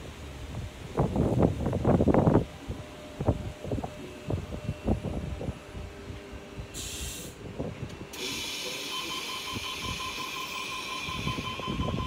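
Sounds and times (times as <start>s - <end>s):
wind buffeting microphone: 0.0s - 8.2s, 11.0s - 12.0s
train air hiss: 6.6s - 12.0s
rapid door warning beeps: 8.2s - 12.0s.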